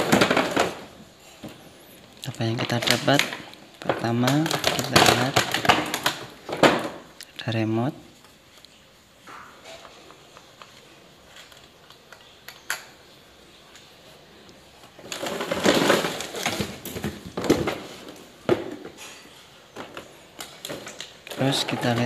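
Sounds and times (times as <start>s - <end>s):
plastic packaging crinkling: 2.3s - 6.8s, 14.9s - 17.9s.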